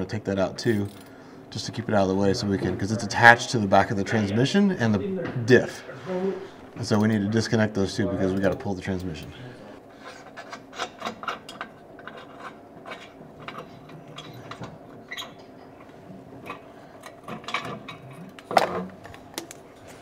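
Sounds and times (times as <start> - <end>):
metal clanks of tools: 10.1 - 20.0.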